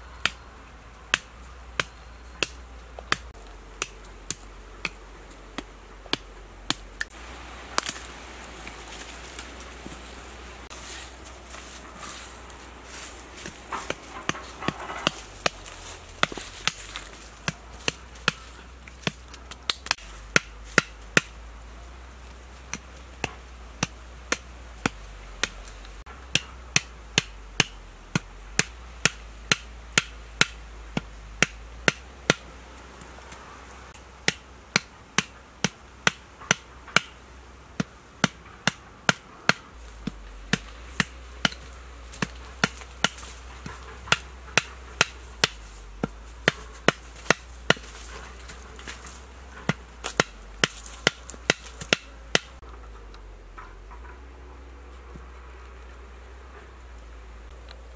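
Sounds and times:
machete striking wooden stakes: 0:01.1 - 0:08.1, 0:12.9 - 0:21.4, 0:22.7 - 0:32.5, 0:33.3 - 0:52.7.

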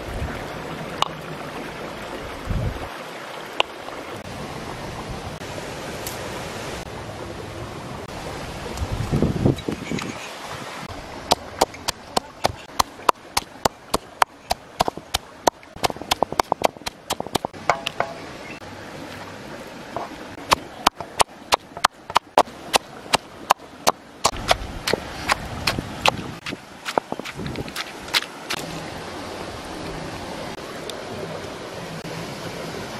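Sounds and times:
pestle pounding in wooden mortar: 0:11.3 - 0:18.2, 0:20.0 - 0:28.3.

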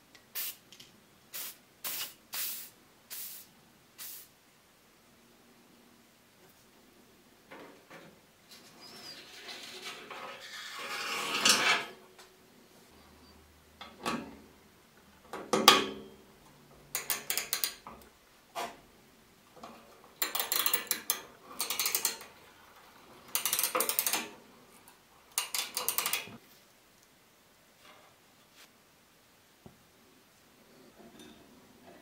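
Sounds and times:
ratcheting wrench clicking: 0:16.9 - 0:17.8, 0:20.2 - 0:22.3, 0:23.3 - 0:24.3, 0:25.3 - 0:26.3.

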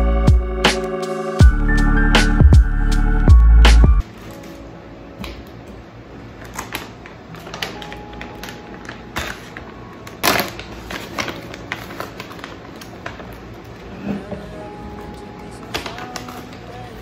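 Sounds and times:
plastic bag rustling: 0:06.4 - 0:14.3.

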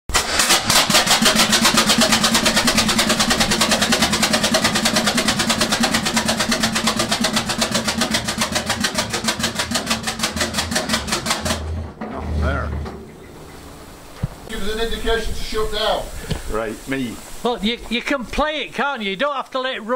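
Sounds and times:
two-stroke diesel engine running: 0:00.1 - 0:12.7.

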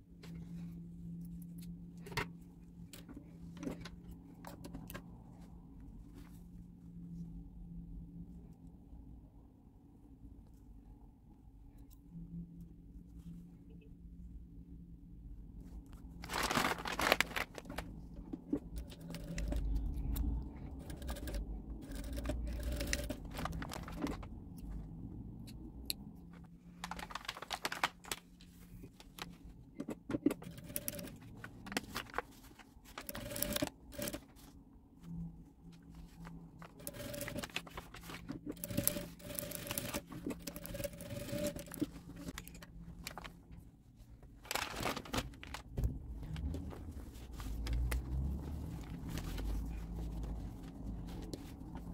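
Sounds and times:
fabric and paper rustling: 0:15.6 - 0:24.9, 0:26.3 - 0:51.9
sewing machine stitching: 0:18.6 - 0:24.0, 0:30.2 - 0:31.2, 0:33.0 - 0:34.2, 0:36.7 - 0:42.3
sewing machine motor humming: 0:20.7 - 0:23.6, 0:33.0 - 0:34.2, 0:36.8 - 0:37.6, 0:38.5 - 0:42.0.

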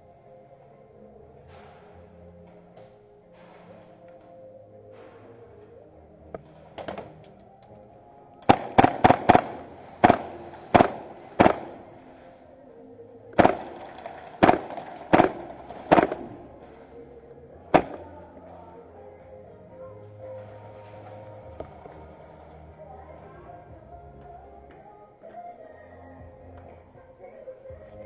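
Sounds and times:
airsoft rifle shots: 0:08.4 - 0:12.2, 0:13.4 - 0:16.8, 0:17.7 - 0:18.2.

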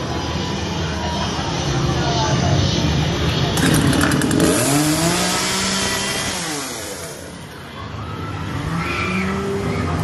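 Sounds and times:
chainsaw engine revving: 0:03.6 - 0:07.2.

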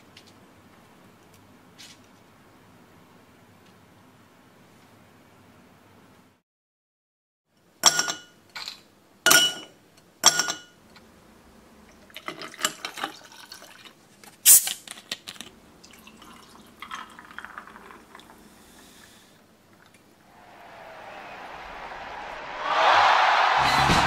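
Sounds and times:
liquid pouring and gurgling: 0:12.1 - 0:14.0, 0:15.8 - 0:18.9.

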